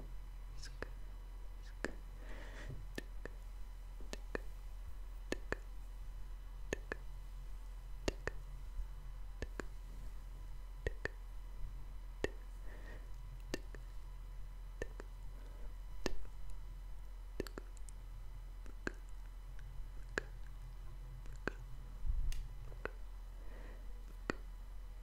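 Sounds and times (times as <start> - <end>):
faint low hum: 0.0 - 25.0
tongue and lip clicks: 4.0 - 4.5, 5.3 - 5.8, 6.7 - 7.1, 8.0 - 8.4, 9.4 - 9.8, 10.8 - 11.2, 12.2 - 12.4, 13.4 - 13.9, 14.8 - 15.2, 16.0 - 16.6, 17.4 - 18.0, 18.6 - 21.7, 22.3 - 23.0, 24.1 - 24.5.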